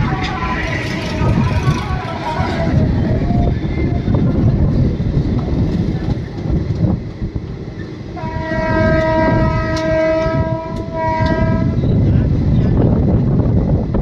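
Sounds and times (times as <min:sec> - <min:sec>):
train wheels rumbling on track: 0:00.0 - 0:14.0
locomotive horn blast: 0:08.2 - 0:11.8.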